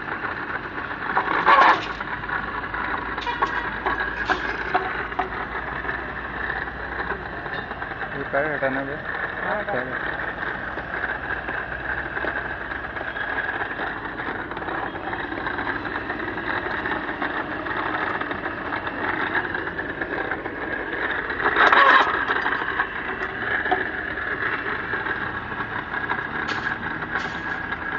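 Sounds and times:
bar cutting machine whirring: 0:00.0 - 0:27.9
cutter crunching through steel: 0:01.3 - 0:02.1, 0:26.4 - 0:27.8.

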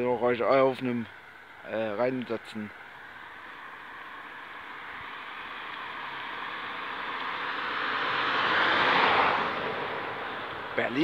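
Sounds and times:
vehicle passing by: 0:03.0 - 0:11.0.

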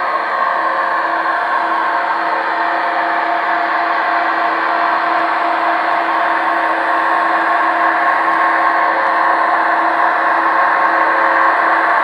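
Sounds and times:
model train running on track: 0:00.0 - 0:12.0.

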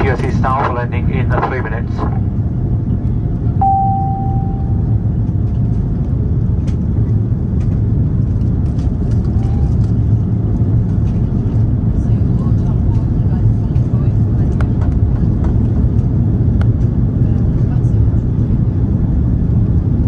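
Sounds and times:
jet cabin rumble: 0:00.0 - 0:20.0
electronic cabin chime: 0:03.6 - 0:05.1.

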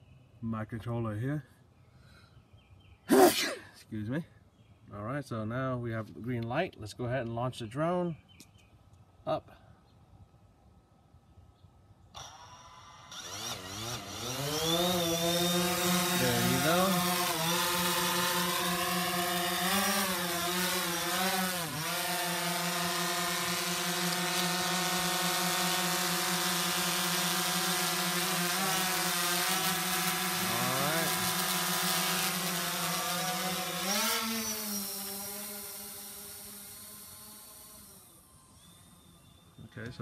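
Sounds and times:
drone propellers whirring: 0:12.2 - 0:39.7.

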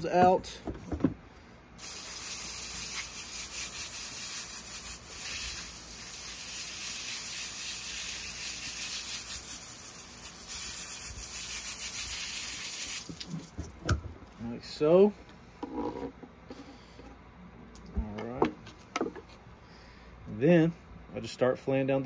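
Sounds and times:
water spraying from hose nozzle: 0:01.8 - 0:13.6.

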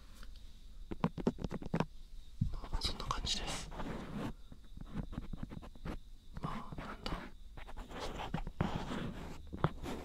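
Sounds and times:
soft whispering: 0:02.4 - 0:04.5, 0:06.4 - 0:10.0
fingers rubbing microphone: 0:03.7 - 0:10.0.

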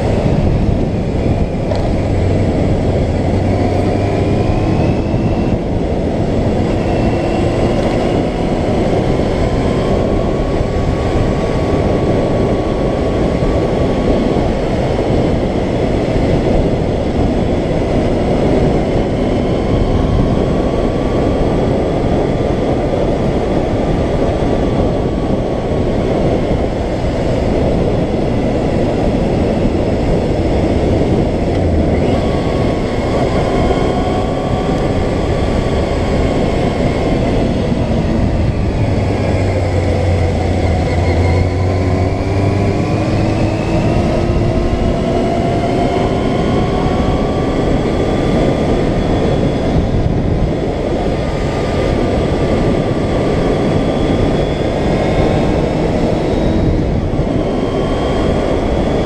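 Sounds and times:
motorcycle engine: 0:00.0 - 0:59.0
wind rushing over microphone: 0:00.0 - 0:59.0.

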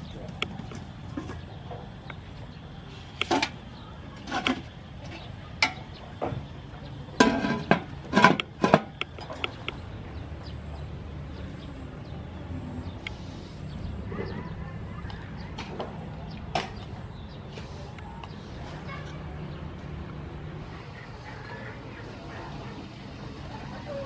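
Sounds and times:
metal steamer pot clanking: 0:03.2 - 0:03.6, 0:04.2 - 0:06.0, 0:07.2 - 0:09.6.

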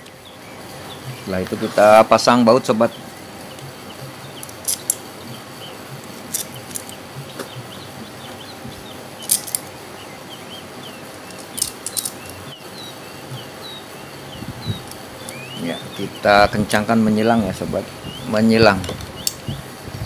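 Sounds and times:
faint bird chirps: 0:10.0 - 0:16.7, 0:18.0 - 0:19.6.

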